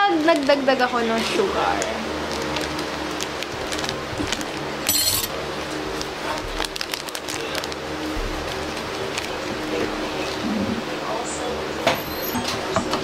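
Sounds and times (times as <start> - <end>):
foil packet crinkling: 1.8 - 5.2, 6.0 - 9.4
scissors cutting foil: 4.8 - 5.4.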